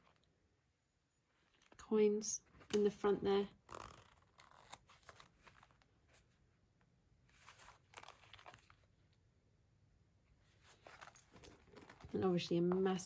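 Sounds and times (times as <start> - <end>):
leather wallets rustling: 3.5 - 6.4, 7.3 - 8.9, 10.4 - 13.0.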